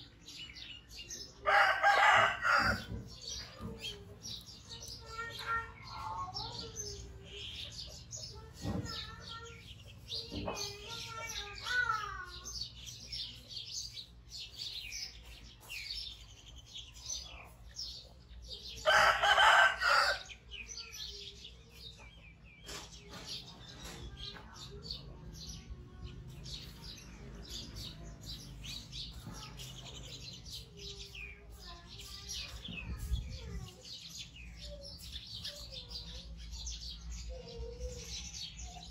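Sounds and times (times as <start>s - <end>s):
chickens calling: 0.0s - 38.9s
small birds chirping: 0.0s - 38.9s
rooster crowing: 1.4s - 2.9s, 18.8s - 20.3s.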